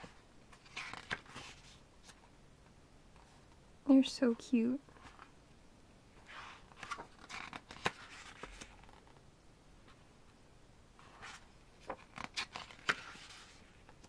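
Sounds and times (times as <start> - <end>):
book pages turning: 0.0 - 2.3, 6.2 - 9.2, 11.0 - 14.0.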